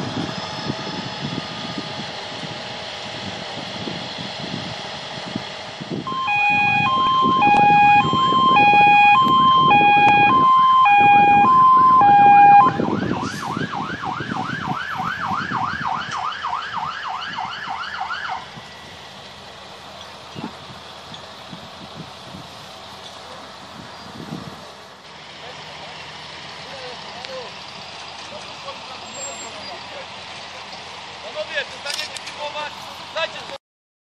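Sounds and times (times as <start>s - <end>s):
emergency vehicle siren: 0.0s - 22.6s
vehicle rumble: 0.0s - 33.6s.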